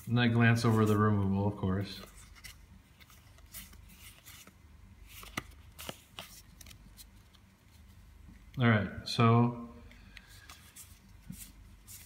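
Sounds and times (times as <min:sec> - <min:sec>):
cards rustling and flicking: 0:00.0 - 0:08.6, 0:09.9 - 0:12.0
soft clicks of cards: 0:02.0 - 0:08.6, 0:09.8 - 0:12.0.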